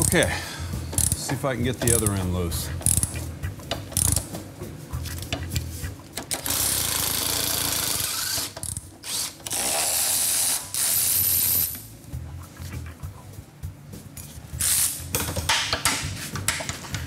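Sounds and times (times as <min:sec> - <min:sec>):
cordless wrench driving nut: 0:00.9 - 0:01.2, 0:01.8 - 0:02.1, 0:02.8 - 0:03.1, 0:03.8 - 0:04.2.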